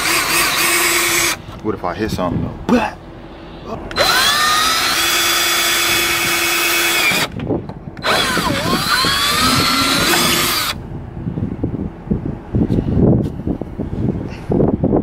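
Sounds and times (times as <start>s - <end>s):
power drill whining: 0.0s - 1.4s, 3.9s - 7.4s, 8.0s - 10.8s.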